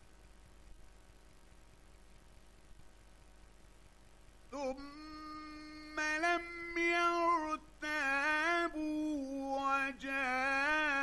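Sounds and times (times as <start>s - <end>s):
man chanting melodically: 4.5s - 11.0s.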